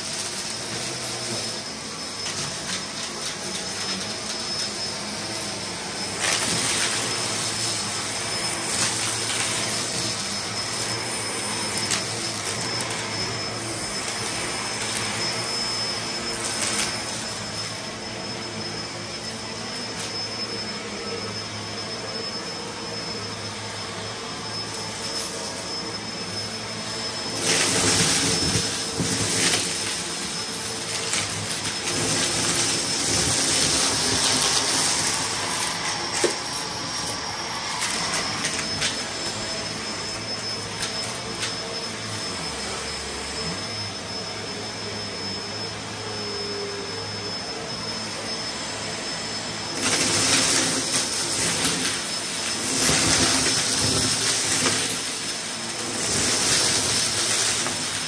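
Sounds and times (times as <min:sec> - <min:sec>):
upright vacuum cleaner whining: 0:00.0 - 0:58.0
debris rattling through vacuum: 0:49.8 - 0:58.0.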